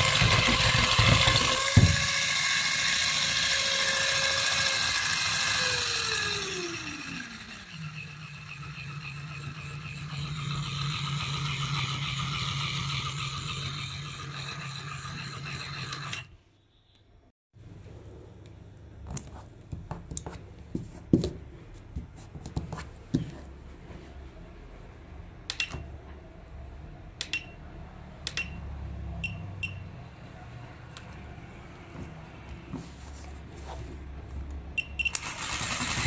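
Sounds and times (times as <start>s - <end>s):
toy motor and gearbox running: 0.0s - 16.3s, 35.0s - 36.0s.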